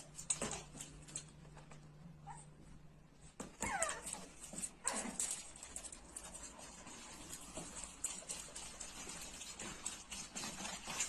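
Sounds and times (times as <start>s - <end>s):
puppy whimpering: 3.5s - 5.2s.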